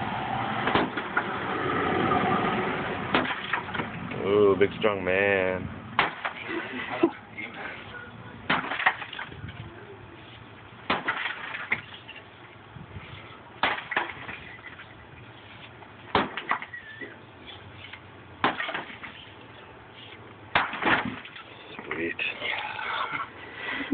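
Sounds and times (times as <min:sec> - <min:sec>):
sledgehammer striking concrete wall: 0:00.6 - 0:01.1, 0:03.1 - 0:03.7, 0:06.0 - 0:06.4, 0:08.5 - 0:09.0, 0:10.9 - 0:11.6, 0:13.6 - 0:14.3, 0:16.1 - 0:16.6, 0:18.4 - 0:19.0, 0:20.5 - 0:21.3.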